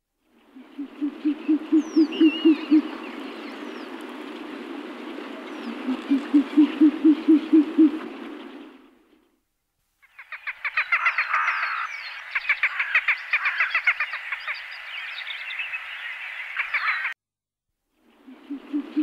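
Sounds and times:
owl hooting: 0.6 - 3.0, 5.6 - 8.8, 18.3 - 19.0.

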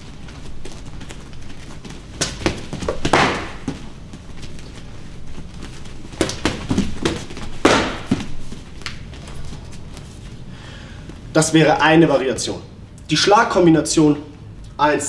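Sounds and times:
punches and kicks on forearms: 2.1 - 3.9, 6.0 - 8.6.

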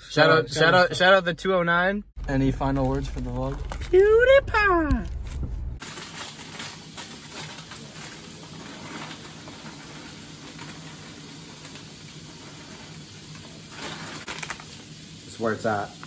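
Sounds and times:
plastic bag crinkling: 2.2 - 15.2
snacks spilling onto a plate: 5.8 - 12.0, 13.4 - 14.8.

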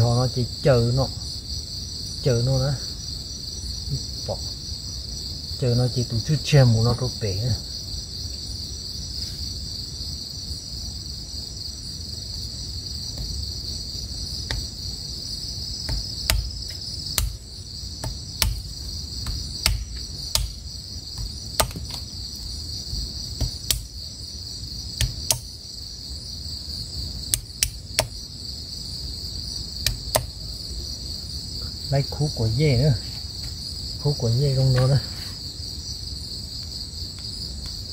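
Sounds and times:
crickets chirping: 0.0 - 37.9
knife chopping wood: 13.1 - 13.4, 14.4 - 14.8, 15.8 - 22.1, 22.9 - 24.0, 25.0 - 25.5, 27.3 - 28.2, 29.8 - 30.4.

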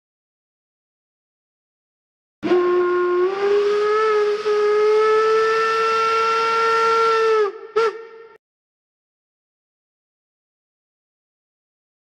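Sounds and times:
steam whistle blowing: 2.4 - 8.4
steam hissing: 2.5 - 7.5.

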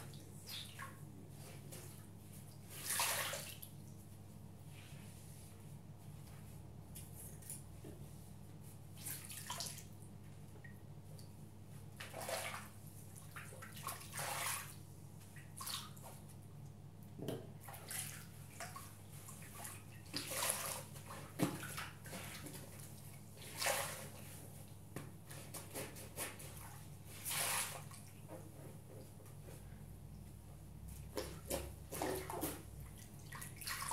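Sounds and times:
wet sponge squelching and sloshing: 0.0 - 3.7, 9.0 - 10.0, 12.0 - 16.3, 17.6 - 24.6, 25.3 - 28.2, 30.9 - 33.9.

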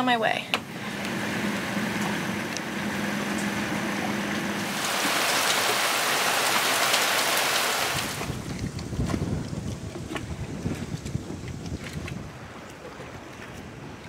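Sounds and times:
rain falling: 0.8 - 8.5.

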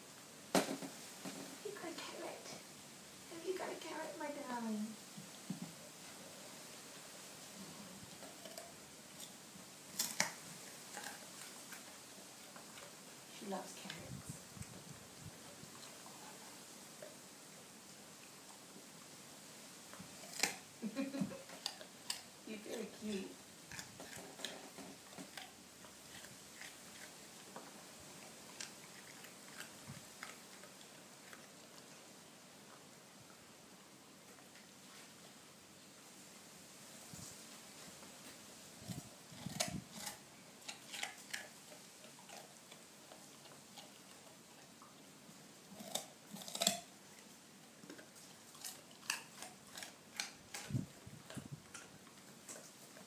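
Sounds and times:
dog crunching a carrot: 7.5 - 19.1, 19.8 - 33.4, 37.8 - 53.0.

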